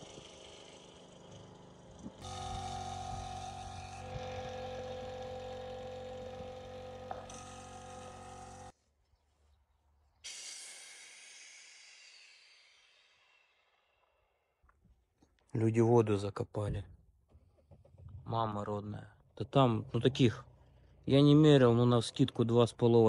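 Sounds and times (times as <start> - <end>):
diesel engine running: 1.4 - 8.7.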